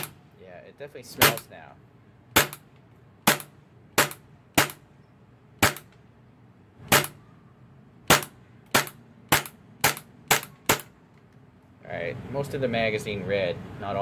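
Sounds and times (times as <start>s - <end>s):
airsoft pistol shots: 2.3s - 4.9s, 5.6s - 5.9s, 6.8s - 7.2s, 8.0s - 11.0s.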